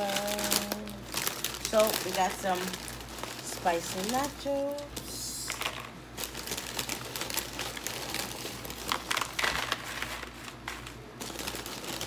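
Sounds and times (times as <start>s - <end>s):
chip bag crinkling: 0.0s - 12.0s
chips clattering into a dish: 8.8s - 11.9s.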